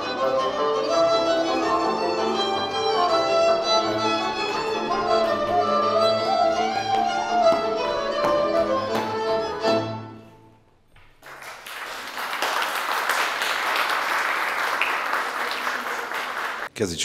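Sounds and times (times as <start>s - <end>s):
fiddle folk dance music: 0.0s - 10.6s
audience applause: 11.2s - 16.7s.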